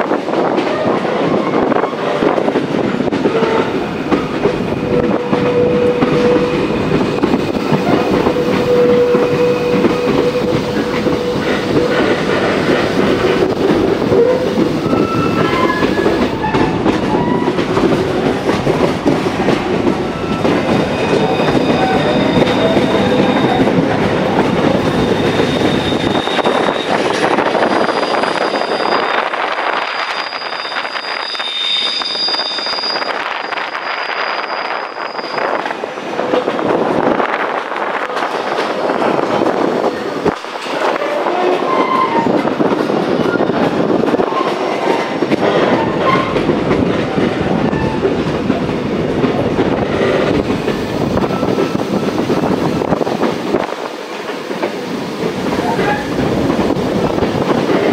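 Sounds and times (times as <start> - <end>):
train wheels rumbling and clattering: 0.0 - 57.9
train wheel squeals: 4.9 - 13.4, 14.1 - 17.7, 19.8 - 36.0, 40.9 - 42.5, 44.2 - 46.5, 49.8 - 52.2.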